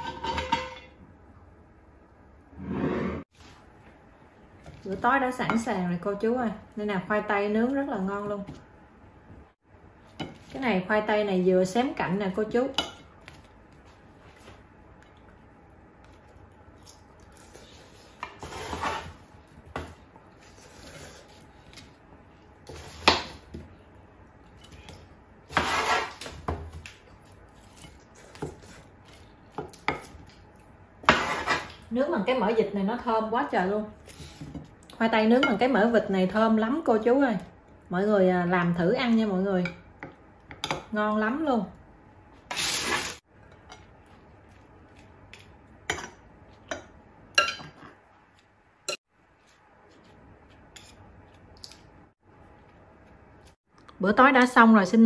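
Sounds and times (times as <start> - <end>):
utensils clinking on ceramic plate: 45.9 - 47.9.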